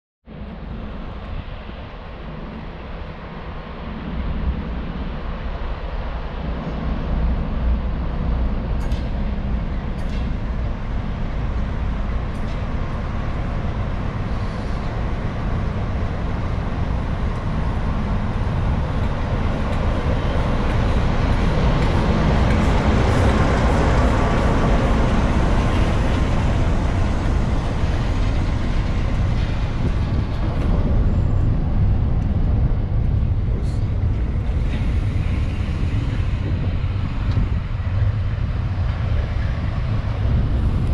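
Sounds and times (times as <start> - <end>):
diesel locomotive passing: 0.3 - 40.9
train coaches rolling past: 0.3 - 40.9.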